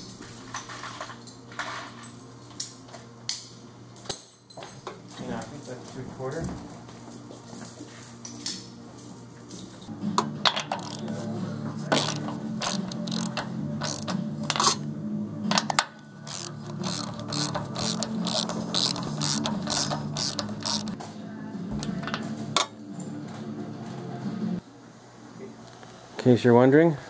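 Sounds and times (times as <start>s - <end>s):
ratchet wrench clicking: 10.7s - 11.1s, 11.9s - 14.8s, 16.3s - 21.0s.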